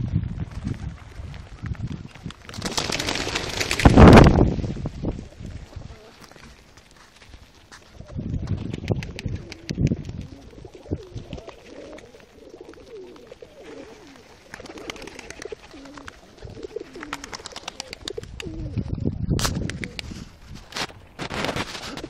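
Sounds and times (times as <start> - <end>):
pigeons cooing: 9.1 - 18.8.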